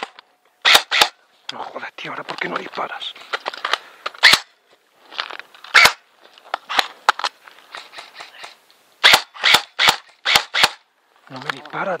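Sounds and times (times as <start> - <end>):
airsoft gun shots: 0.0 - 1.2, 4.2 - 4.5, 5.7 - 6.0, 8.0 - 10.8
faint crackling handling noise: 1.3 - 8.8, 11.0 - 12.0.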